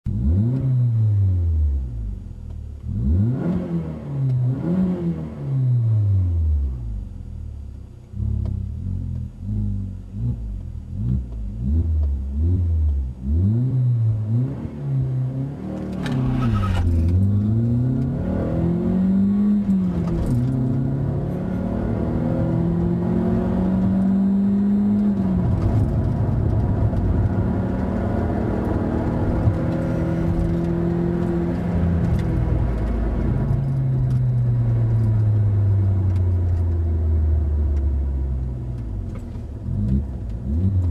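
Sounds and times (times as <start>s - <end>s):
car engine revving: 0.1s - 7.4s, 8.0s - 40.9s
road noise: 9.1s - 40.9s.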